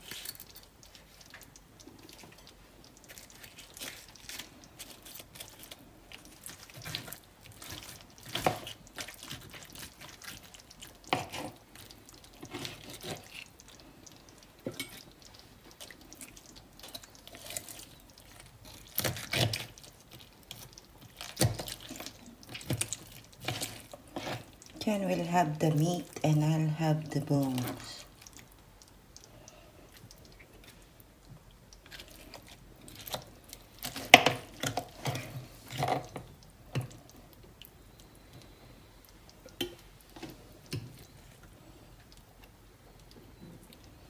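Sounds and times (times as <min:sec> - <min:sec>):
meat and skin tearing: 0:03.0 - 0:13.9, 0:15.8 - 0:24.7.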